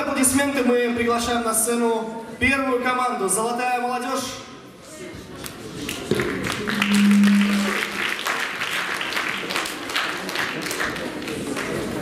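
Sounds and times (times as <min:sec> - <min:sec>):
audience applauding: 0:05.9 - 0:12.0
low held musical note: 0:06.7 - 0:08.2.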